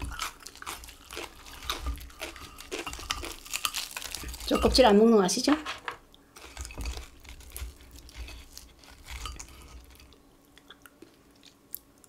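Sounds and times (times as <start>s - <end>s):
chewing: 0.0s - 4.6s, 6.4s - 12.0s
fried chicken skin crackling: 0.0s - 5.0s, 6.4s - 10.1s.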